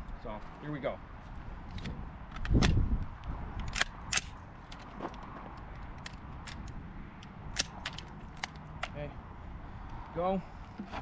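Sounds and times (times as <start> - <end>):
rifle parts clicking: 1.7 - 2.8, 3.6 - 9.0.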